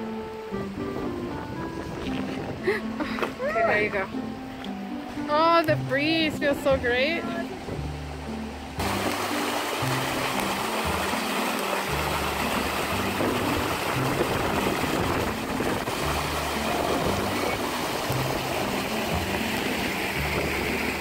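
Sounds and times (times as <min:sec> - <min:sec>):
background music with bass line: 0:00.0 - 0:21.0
creek water rushing over rocks: 0:00.0 - 0:21.0.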